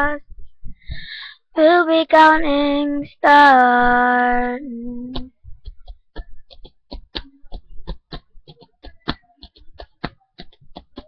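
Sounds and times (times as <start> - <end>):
soft clicks with low thumps: 0.0 - 1.1, 3.6 - 11.0.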